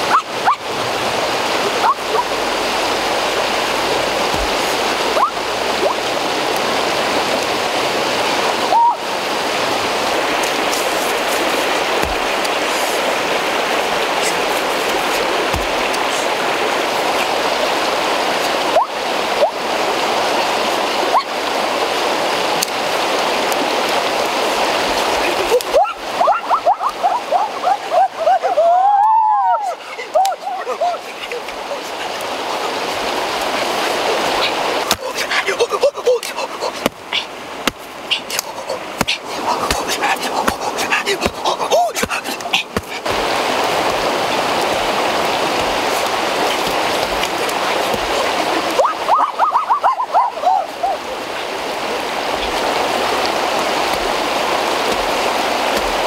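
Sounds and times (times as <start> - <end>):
river rushing over rapids: 0.0 - 56.0.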